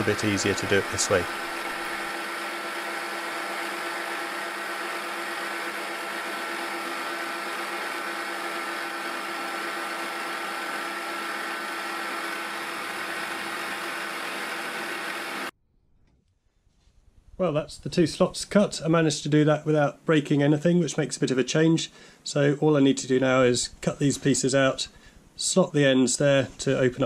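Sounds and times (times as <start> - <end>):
milling machine cutting metal: 0.0 - 15.5.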